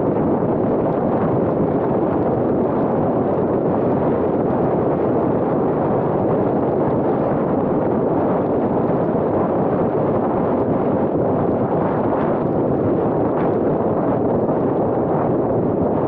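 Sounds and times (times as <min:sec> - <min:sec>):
tyre and wind noise: 0:00.0 - 0:16.0.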